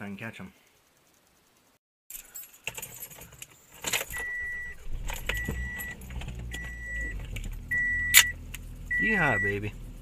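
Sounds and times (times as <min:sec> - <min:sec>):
low steady hum: 0:00.6 - 0:10.0
car keys jangling: 0:02.1 - 0:08.3
car warning chime beeping: 0:04.1 - 0:09.6.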